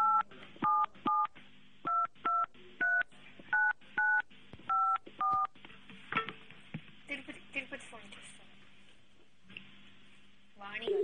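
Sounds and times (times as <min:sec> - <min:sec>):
telephone keypad beeps: 0:00.0 - 0:01.3.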